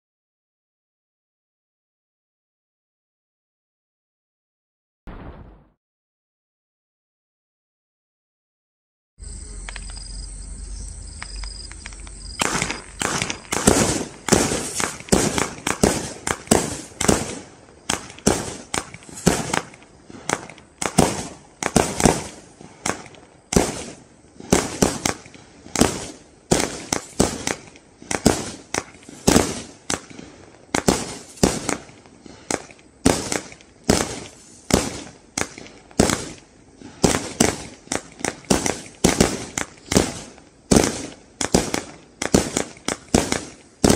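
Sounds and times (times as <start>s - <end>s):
firework barrage bangs: 5.1s - 5.8s, 12.4s - 43.9s.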